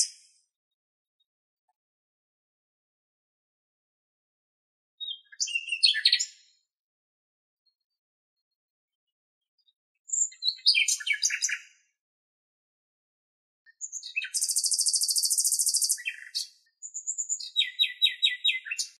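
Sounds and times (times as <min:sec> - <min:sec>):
nightingale singing: 0:05.0 - 0:06.5, 0:10.1 - 0:11.8, 0:13.7 - 0:19.0.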